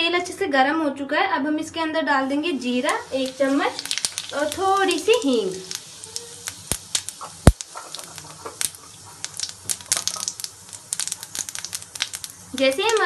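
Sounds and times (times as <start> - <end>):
faint sizzle: 2.2 - 13.0
seeds crackling and popping in oil: 2.8 - 13.0.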